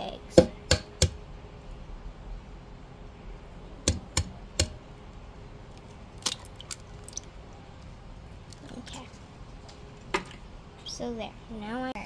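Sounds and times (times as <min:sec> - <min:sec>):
egg tapped against pan: 0:00.4 - 0:01.2, 0:03.9 - 0:04.8.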